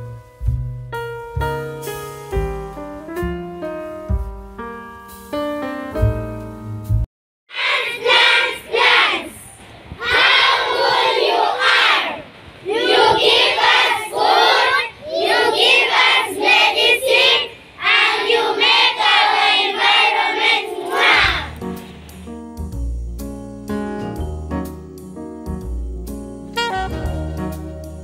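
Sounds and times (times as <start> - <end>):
children calling out in unison: 20.6 - 21.6.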